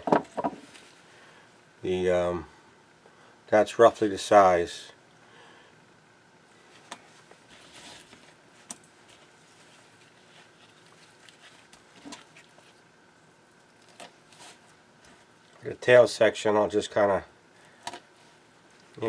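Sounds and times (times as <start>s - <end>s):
gloved hands handling squid: 6.7s - 15.6s.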